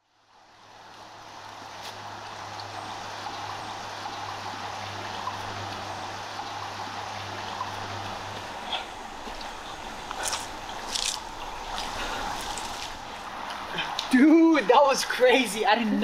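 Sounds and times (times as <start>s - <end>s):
creek running: 0.0s - 16.0s.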